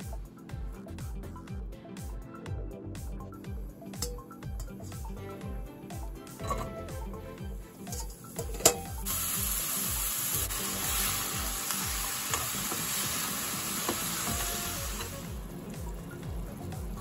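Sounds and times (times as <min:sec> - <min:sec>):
mushrooms sizzling in oil: 0:07.6 - 0:16.2.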